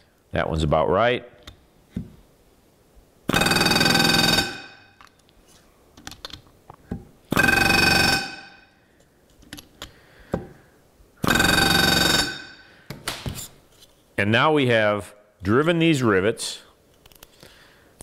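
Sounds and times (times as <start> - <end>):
rivet gun buzzing: 3.3 - 4.8, 7.3 - 8.6, 11.2 - 12.6.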